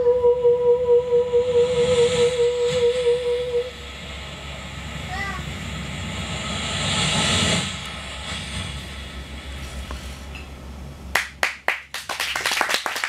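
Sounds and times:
steady low hum: 0.0 - 13.0
loud hiss: 1.6 - 11.1
hand claps and applause: 11.1 - 13.0.

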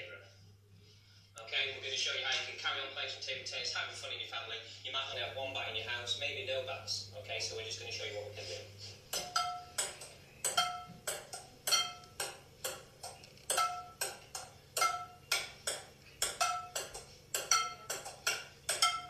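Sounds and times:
ping-pong ball clacks on table: 9.1 - 19.0
metal pan ringing: 9.2 - 12.3, 13.5 - 14.1, 14.8 - 15.4, 16.2 - 19.0.

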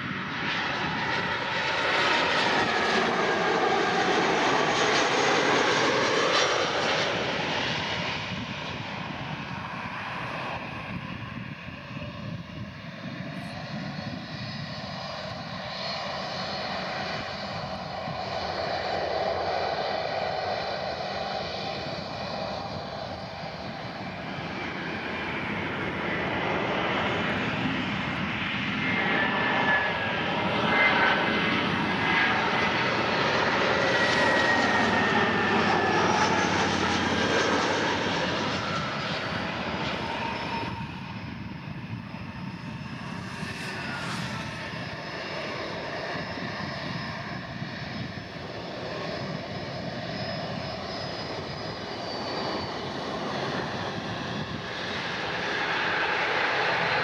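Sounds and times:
jet airliner engines: 0.0 - 57.0.

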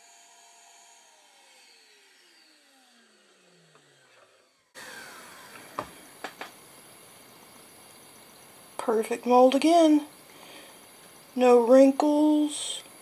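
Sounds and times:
vacuum motor spinning down: 0.0 - 7.0.

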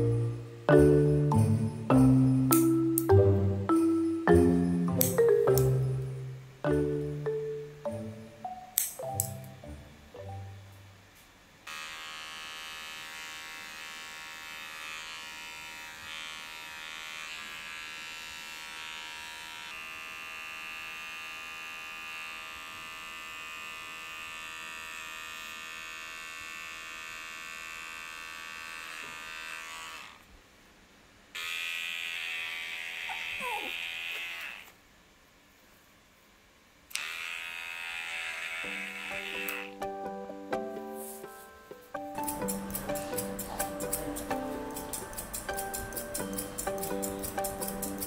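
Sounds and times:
electric pet clipper humming: 11.6 - 30.3, 31.3 - 34.8, 36.9 - 39.9, 42.1 - 48.0.

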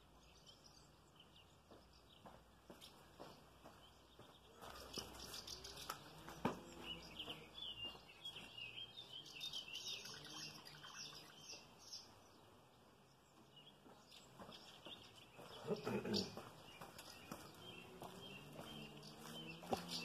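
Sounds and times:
high bird chirps: 0.2 - 12.3, 13.6 - 20.0.

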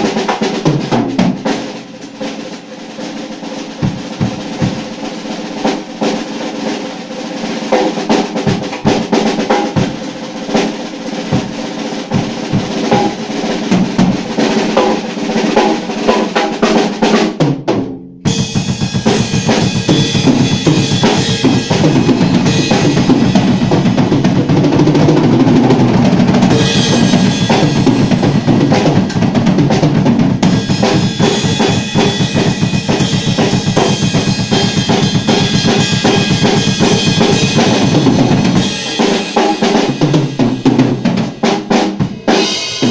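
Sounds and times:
drum kit playing: 0.0 - 42.9
cymbals crashing: 42.0 - 42.9.

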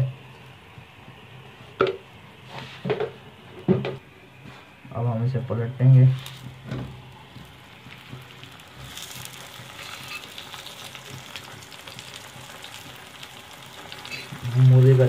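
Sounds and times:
flatbread sizzling on a griddle: 5.8 - 15.0.

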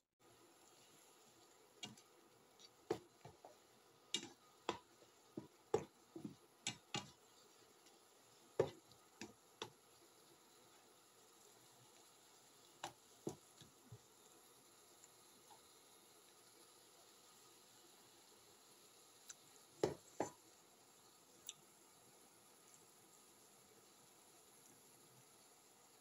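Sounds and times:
food simmering in a frying pan: 0.1 - 26.0
sharp pops and crackles: 1.8 - 7.2.

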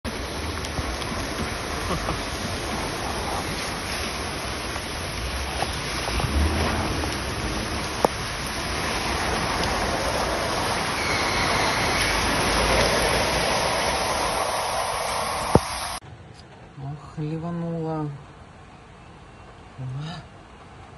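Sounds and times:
floodwater washing around car: 0.0 - 16.0
heavy rain: 0.0 - 16.0.

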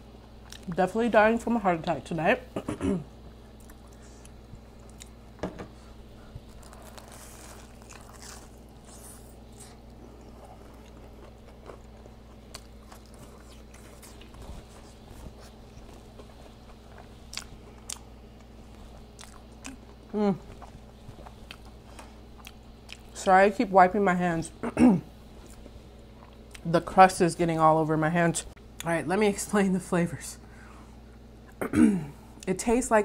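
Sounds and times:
chewing and crunching food: 0.2 - 0.8, 3.4 - 5.4, 6.2 - 23.3, 25.3 - 26.8.

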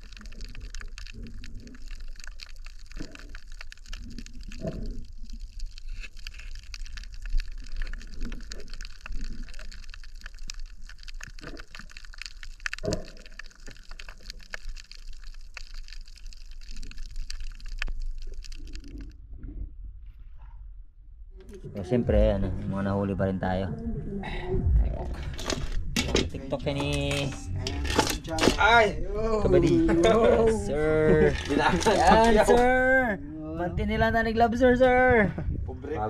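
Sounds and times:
snapping shrimp crackle: 0.0 - 19.2, 25.3 - 28.9, 30.8 - 32.7
water gurgling and bubbles: 0.0 - 20.0.

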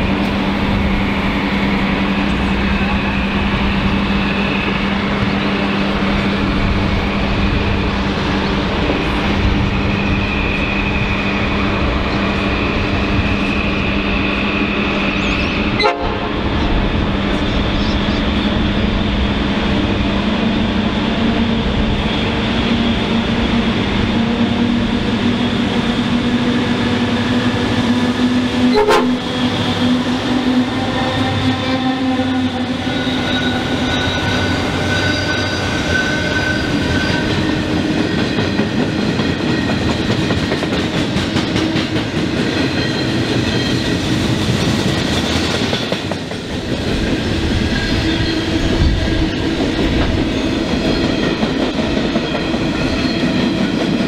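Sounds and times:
diesel locomotive engines humming: 0.0 - 54.0
train wagons rolling and rattling: 32.5 - 54.0.

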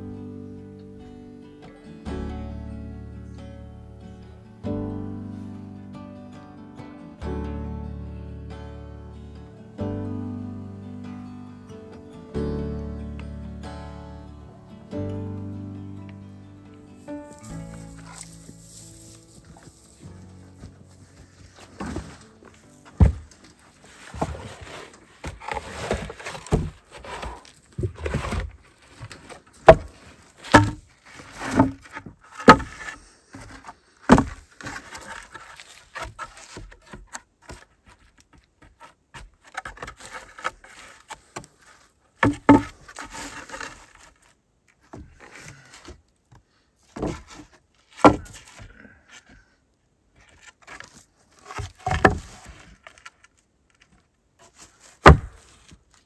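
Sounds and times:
wood scraping on wood: 17.1 - 46.0, 46.8 - 49.5, 50.2 - 56.0
wooden boards knocking: 22.9 - 23.4, 29.6 - 29.9, 30.5 - 30.8, 31.4 - 33.5, 34.1 - 35.1, 42.2 - 43.1, 47.0 - 48.4, 51.5 - 52.6, 55.0 - 55.4.

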